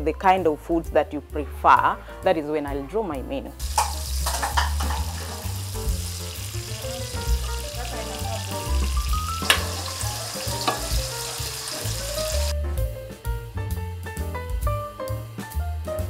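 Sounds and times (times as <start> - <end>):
background music with bass: 0.0 - 16.0
onions sizzling in oil: 3.6 - 12.5.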